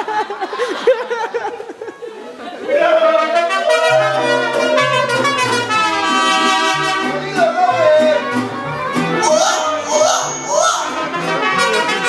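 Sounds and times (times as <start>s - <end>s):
trumpets playing melody: 3.1s - 12.0s
strummed guitars: 3.4s - 12.0s
plucked bass line: 3.8s - 12.0s.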